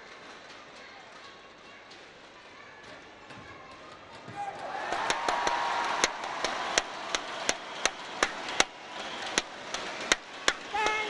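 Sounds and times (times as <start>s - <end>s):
crowd clapping in unison: 0.0s - 11.0s
crowd cheering: 3.7s - 11.0s.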